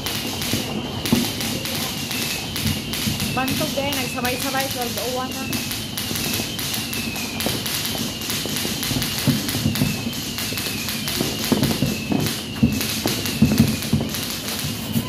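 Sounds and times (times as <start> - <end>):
faint falling whistle: 0.0 - 15.0
firecrackers popping and crackling: 0.0 - 15.0
firework bangs: 0.0 - 15.0.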